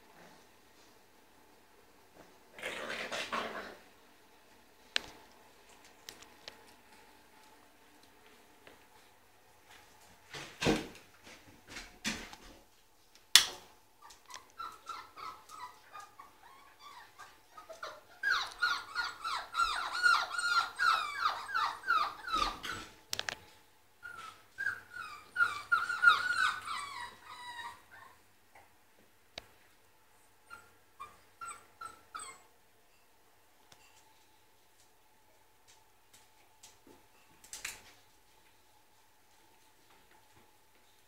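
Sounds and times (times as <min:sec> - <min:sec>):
puppies whimpering and yelping: 0:14.1 - 0:23.0, 0:24.0 - 0:28.2, 0:30.4 - 0:32.5.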